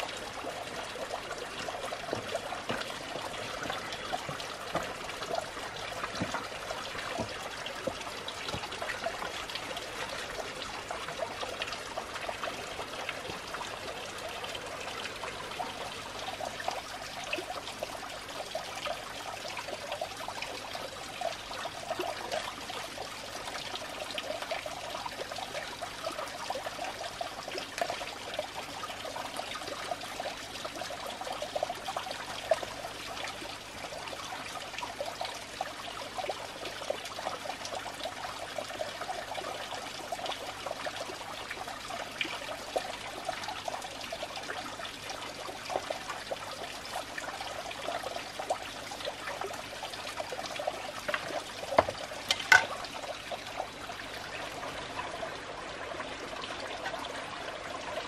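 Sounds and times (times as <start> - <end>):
water splashing from pipe: 0.0 - 20.7, 45.3 - 53.6.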